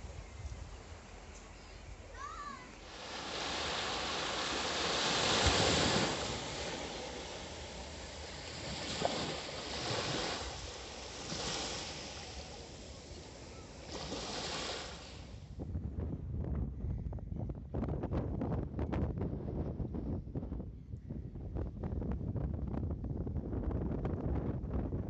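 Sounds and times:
small waves breaking on beach: 0.0 - 15.5.

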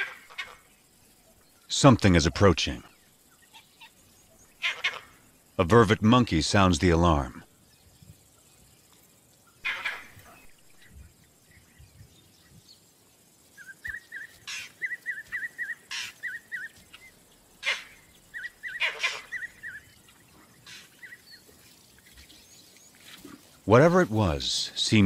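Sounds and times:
monkey high chirps: 13.6 - 19.9.

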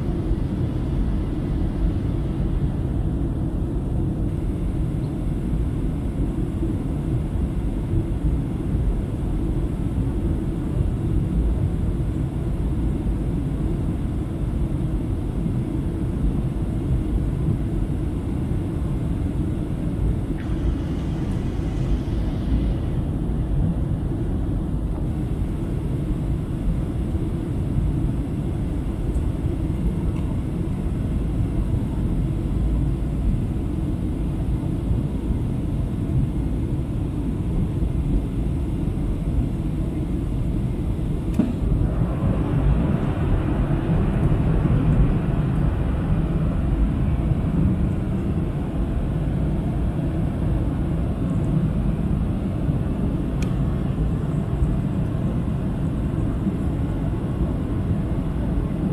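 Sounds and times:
aircraft cabin engine rumble: 0.0 - 58.9
hissy rush of air: 19.8 - 26.4, 41.2 - 51.1
faint click: 41.3 - 41.6, 53.4 - 53.6.

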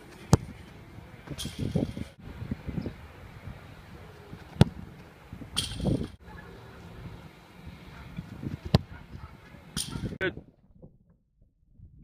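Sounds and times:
foot kicking soccer ball: 4.4 - 5.0.

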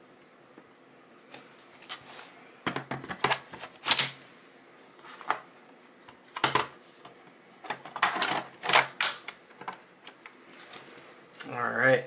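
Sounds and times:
plastic clicks and knocks: 2.6 - 3.5.

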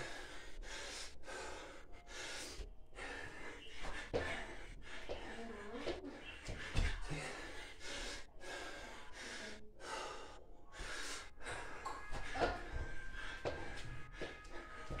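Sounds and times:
man breathing hard: 0.0 - 15.0.

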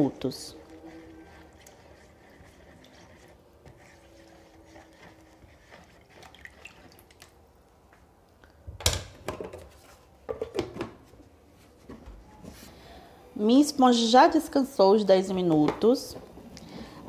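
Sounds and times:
spatula stirring liquid in bowl: 0.0 - 7.4.

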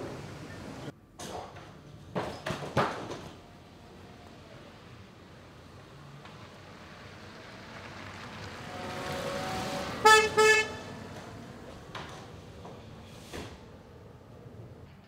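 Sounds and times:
car driving past: 3.8 - 12.6
car horn toots: 10.0 - 10.9.

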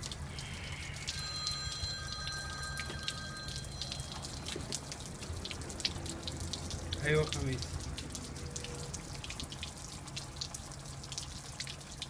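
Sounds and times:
water dripping and splashing: 0.0 - 12.0
faint high tones: 0.2 - 4.9.

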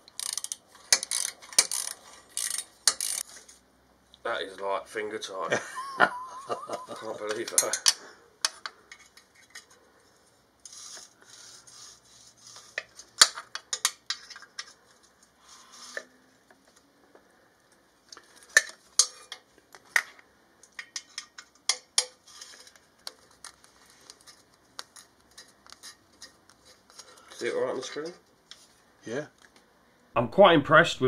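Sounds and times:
allen key clinking and scraping: 7.0 - 9.8, 18.4 - 19.4.

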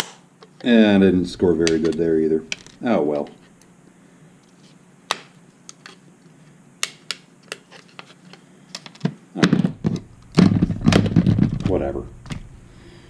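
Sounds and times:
knocks and handling noise: 1.6 - 3.7, 6.8 - 12.5.

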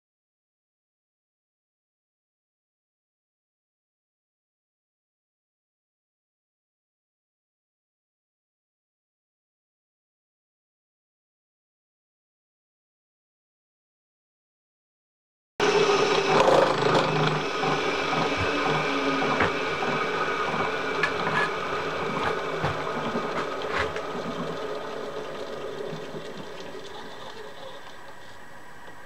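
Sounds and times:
milling machine cutting gear: 15.6 - 29.0.

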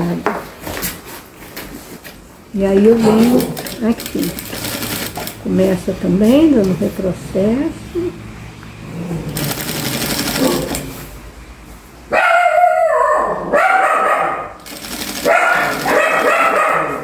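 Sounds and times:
industrial sewing machine stitching: 2.9 - 5.6, 9.2 - 11.1, 14.6 - 16.6
dogs howling and barking: 12.1 - 14.6, 15.2 - 17.0.

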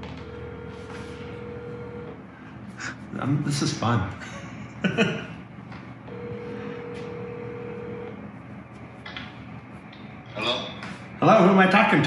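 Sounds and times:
telephone ringback tone: 0.2 - 2.1, 6.1 - 8.1
man laughing: 4.2 - 5.4.

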